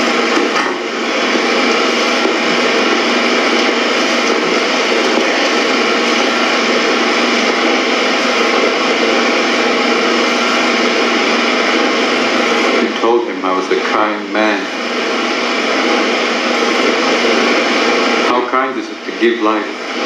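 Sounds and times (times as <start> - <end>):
film projector whirring: 0.0 - 20.0.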